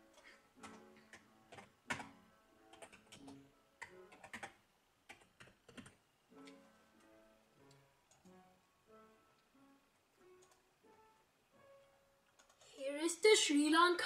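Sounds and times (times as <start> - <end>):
keyboard keys clicking: 0.0 - 6.6, 10.2 - 10.7, 12.3 - 12.7.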